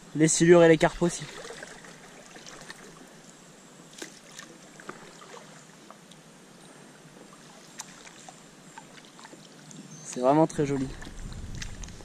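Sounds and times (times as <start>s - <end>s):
paddle splashing in water: 0.9s - 3.2s, 3.9s - 5.7s, 7.3s - 12.0s.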